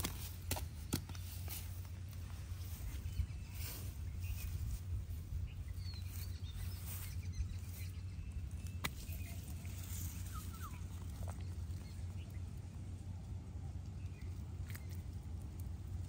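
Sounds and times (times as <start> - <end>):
low hum: 0.0 - 16.0
faint bird chirps: 2.6 - 12.8.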